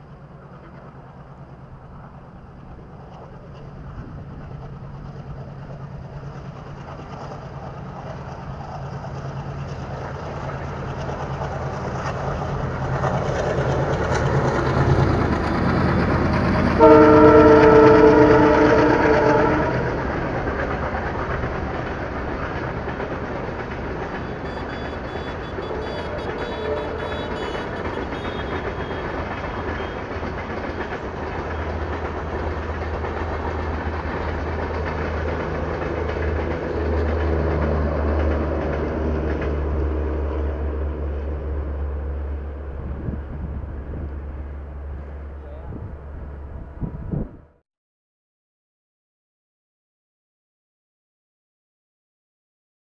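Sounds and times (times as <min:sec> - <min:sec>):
diesel locomotive chugging: 0:00.0 - 0:47.5
train coaches rumbling past: 0:00.0 - 0:47.6
locomotive horn blast: 0:16.8 - 0:20.0, 0:24.1 - 0:30.9
wheels clattering over rail joints: 0:19.9 - 0:41.5.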